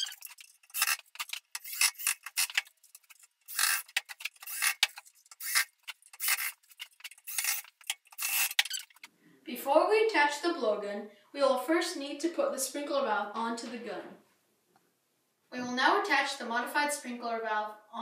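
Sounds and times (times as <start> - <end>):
cordless drill driving screws: 0.0 - 2.7, 3.5 - 9.1.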